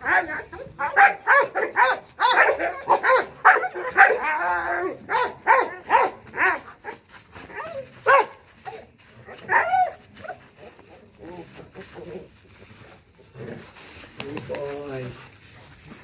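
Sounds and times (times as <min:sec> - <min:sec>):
dogs barking fiercely: 0:00.0 - 0:11.2.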